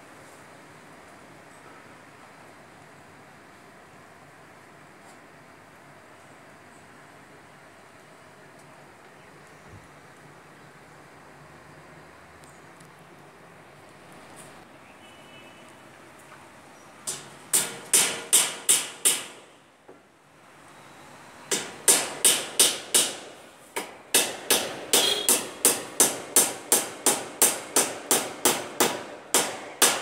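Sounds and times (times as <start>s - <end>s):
hammer striking wood: 17.1s - 19.5s, 21.5s - 30.0s.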